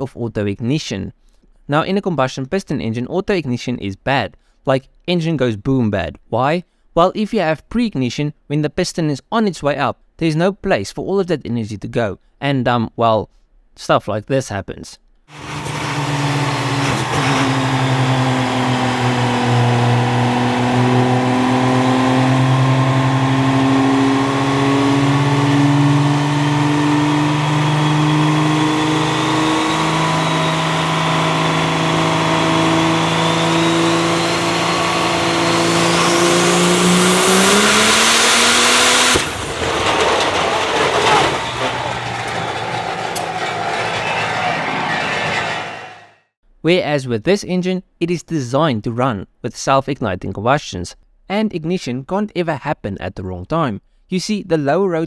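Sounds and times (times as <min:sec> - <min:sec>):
engine failing with loud bang: 0:15.3 - 0:46.2
diesel truck engine droning with whine: 0:15.4 - 0:46.2.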